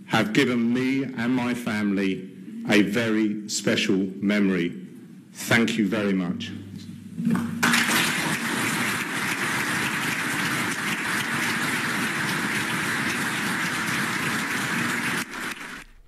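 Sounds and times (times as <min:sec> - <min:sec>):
audience applauding: 0:07.3 - 0:16.0.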